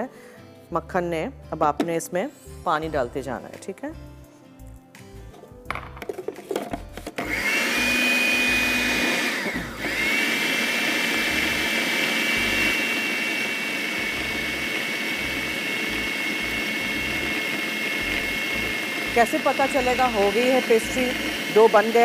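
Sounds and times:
food processor motor whining: 0:07.1 - 0:22.0.

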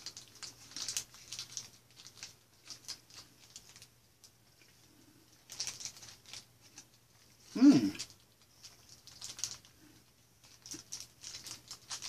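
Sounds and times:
man humming mmm: 0:07.5 - 0:08.0.

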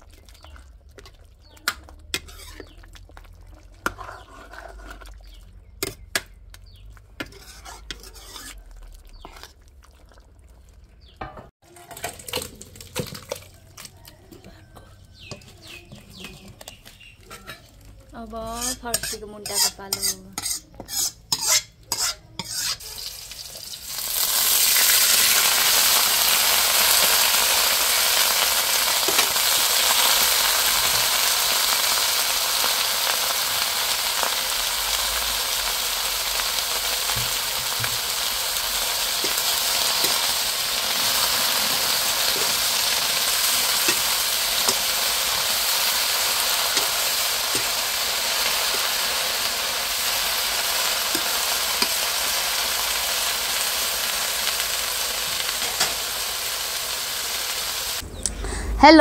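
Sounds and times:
vegetables sizzling in hot oil: 0:06.7 - 0:09.4, 0:15.2 - 0:58.0.

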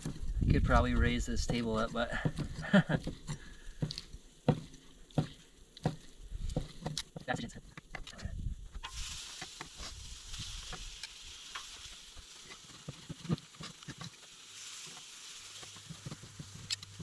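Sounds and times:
food sizzling on a grill: 0:08.6 - 0:17.0.

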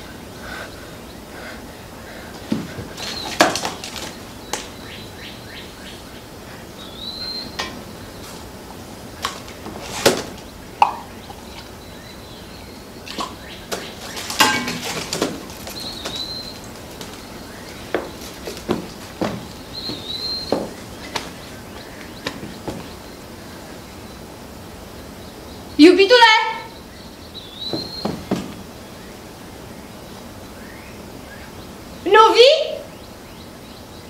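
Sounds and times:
props knocking and clinking: 0:13.1 - 0:21.5.

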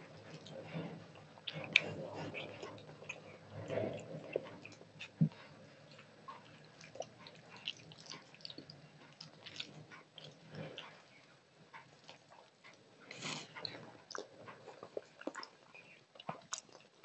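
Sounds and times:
chewing: 0:00.0 - 0:17.0.

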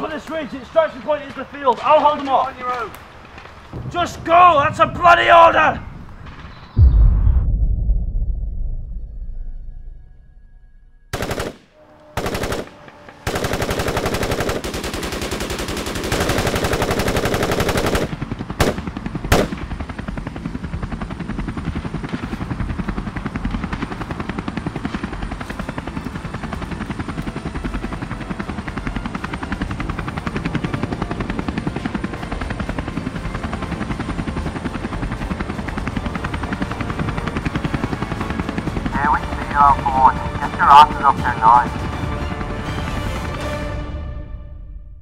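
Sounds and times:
helicopter rotor chopping: 0:00.0 - 0:06.9, 0:11.1 - 0:43.7
automatic gunfire: 0:11.1 - 0:19.6.

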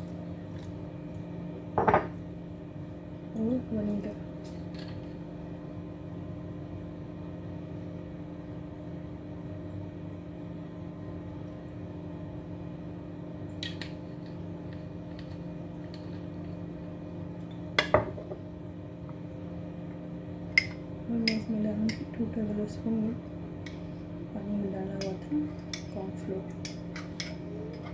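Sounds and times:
glass bottle knock on counter: 0:01.8 - 0:02.1, 0:17.8 - 0:18.4.

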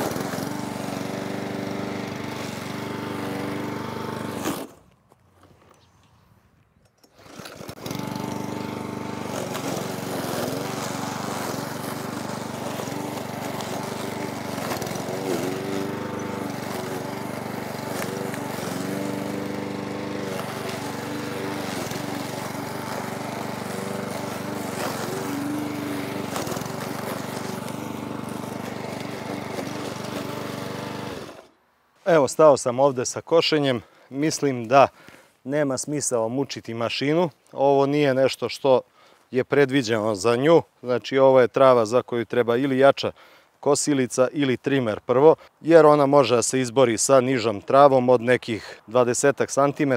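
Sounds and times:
lawn mower engine under load: 0:00.0 - 0:05.8, 0:06.8 - 0:32.1.

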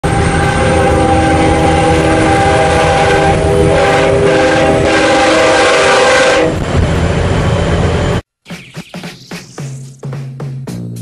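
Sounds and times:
truck air horn blowing: 0:00.1 - 0:06.6.

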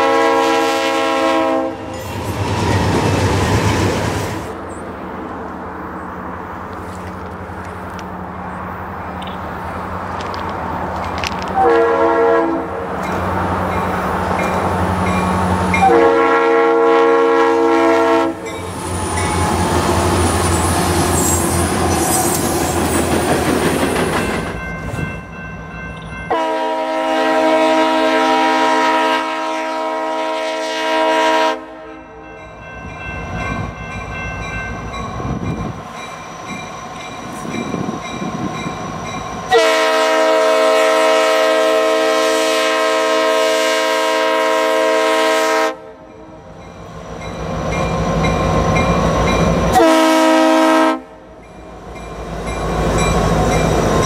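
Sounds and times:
locomotive air horn blasts: 0:00.0 - 0:02.0, 0:11.6 - 0:12.8, 0:15.8 - 0:18.6, 0:26.3 - 0:32.3, 0:39.5 - 0:46.1, 0:49.7 - 0:51.2
freight train rumbling: 0:00.0 - 0:54.0
wheels clicking over rail joints: 0:09.1 - 0:11.7.

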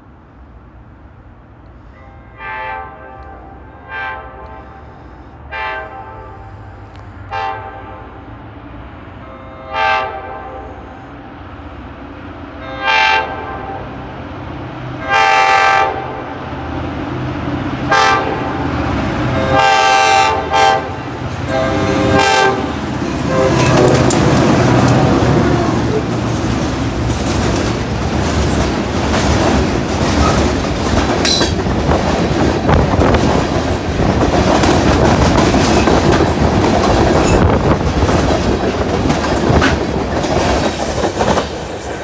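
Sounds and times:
locomotive engine and wheels rumble: 0:00.0 - 0:42.0
locomotive horn blasts: 0:01.8 - 0:08.3, 0:09.2 - 0:11.1, 0:12.6 - 0:14.0, 0:15.0 - 0:16.3, 0:17.9 - 0:26.2.

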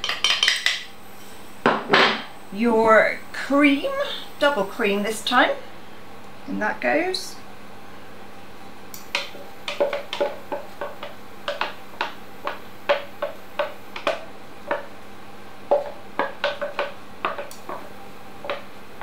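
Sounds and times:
spoon tapping and scraping a pot: 0:09.1 - 0:14.9, 0:15.7 - 0:18.7.

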